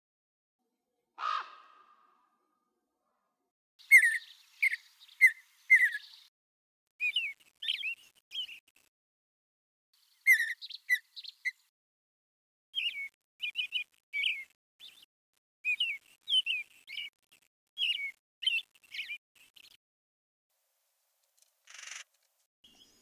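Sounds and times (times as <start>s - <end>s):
small birds chirping: 3.8s - 6.3s, 7.0s - 8.9s, 10.0s - 11.7s, 12.7s - 19.8s, 21.2s - 23.0s.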